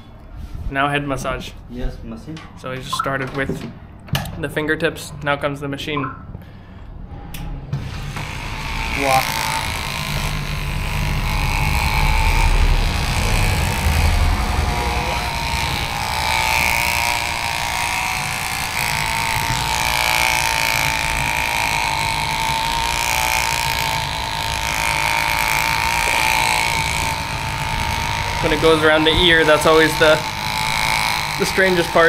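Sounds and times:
motor whine: 7.8 - 32.0
low vibrating buzz: 8.1 - 32.0.

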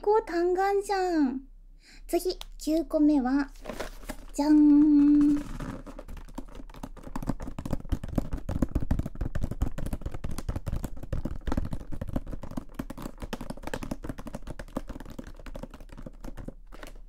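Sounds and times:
fingertips tapping on cardboard: 5.3 - 17.0.

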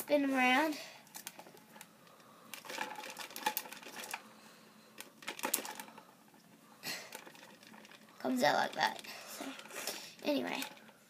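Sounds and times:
plastic toy rattling and clicking: 2.5 - 4.2, 5.0 - 11.0.

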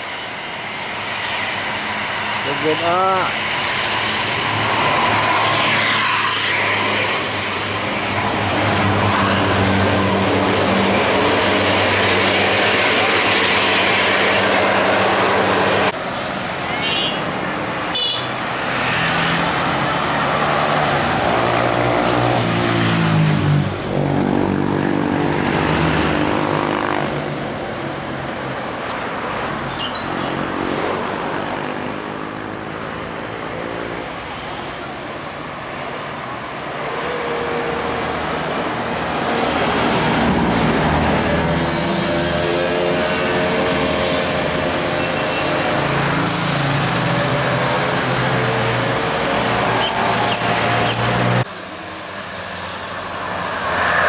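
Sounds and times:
bus engines revving: 0.0 - 54.0
road traffic: 0.0 - 54.0
motorcycles: 16.0 - 27.8.

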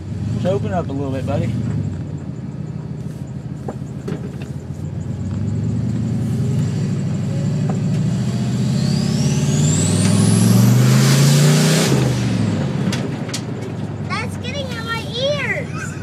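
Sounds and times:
car engine accelerating: 0.0 - 16.0
turbocharger whistle: 8.3 - 12.1.

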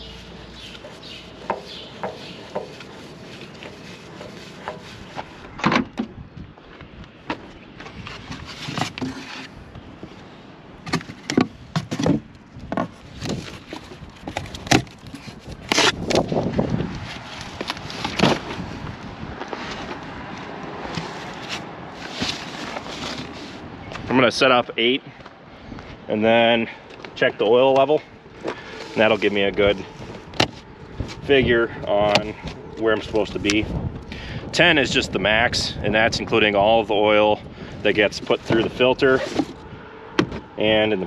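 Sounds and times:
cardboard scuffs: 20.8 - 23.6.

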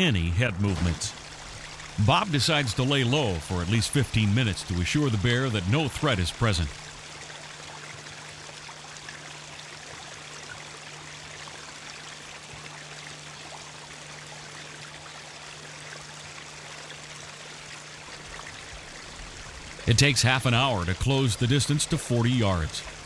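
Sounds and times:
steady rushing hiss: 0.9 - 7.1.

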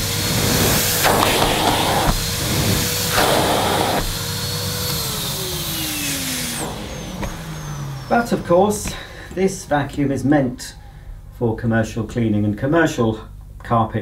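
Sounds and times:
vacuum nozzle on carpet: 0.0 - 9.1
vacuum cleaner motor running: 0.0 - 9.7.

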